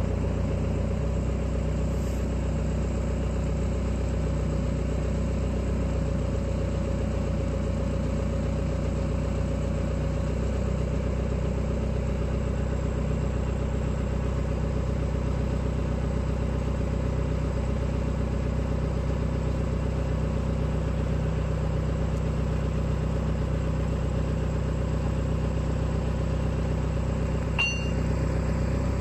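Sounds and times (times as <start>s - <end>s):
diesel engine running: 0.0s - 29.0s
metallic clink: 27.6s - 28.1s.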